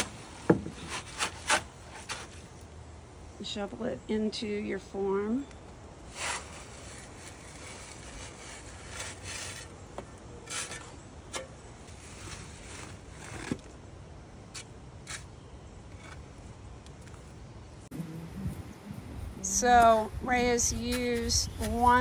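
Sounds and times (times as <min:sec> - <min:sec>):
shovel scraping wet concrete: 0:06.1 - 0:09.8, 0:10.4 - 0:13.7, 0:14.6 - 0:15.3.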